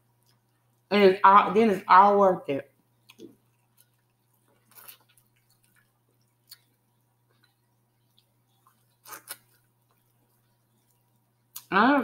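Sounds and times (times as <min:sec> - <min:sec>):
chewing corn on the cob: 0:03.0 - 0:11.7
wet mouth noises: 0:03.0 - 0:11.7.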